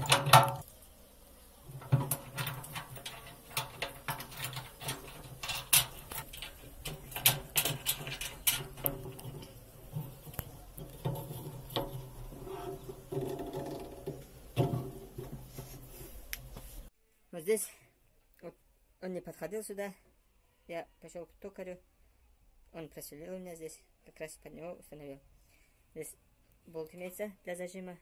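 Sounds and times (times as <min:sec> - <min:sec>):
belt clicking and knocking on pulleys: 0:01.8 - 0:15.5.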